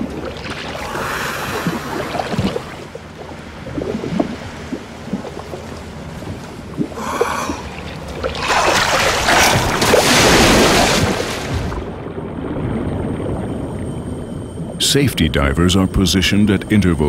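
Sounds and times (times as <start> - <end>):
rush of splashing water: 0.0 - 13.4
sea water sloshing and splashing: 0.0 - 14.8.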